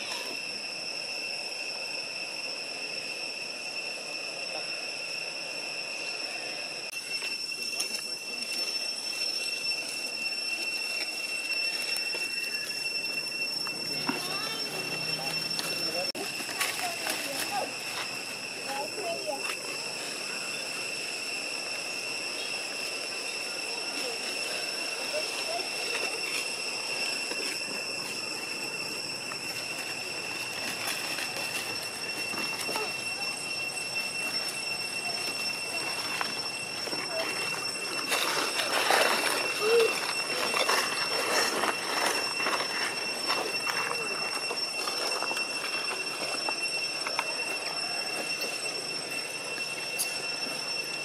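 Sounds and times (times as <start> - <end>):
high-pitched insect drone: 0.0 - 51.0
rustling in dry leaf litter: 10.8 - 21.2, 23.4 - 46.2.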